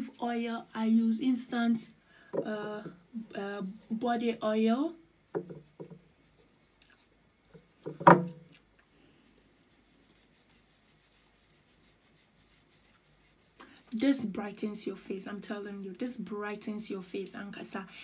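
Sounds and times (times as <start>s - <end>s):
scrub rubbed over skin: 5.5s - 7.8s, 9.1s - 14.7s.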